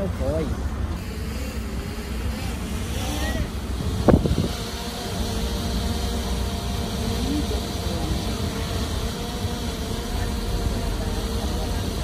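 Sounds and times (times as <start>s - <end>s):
diesel engine rumbling: 0.0s - 12.0s.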